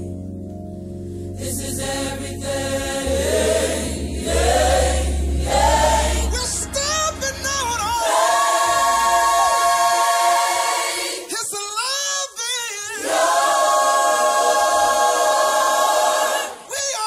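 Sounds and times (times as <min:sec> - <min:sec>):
singers holding a chord: 0:01.3 - 0:11.4, 0:12.9 - 0:17.0.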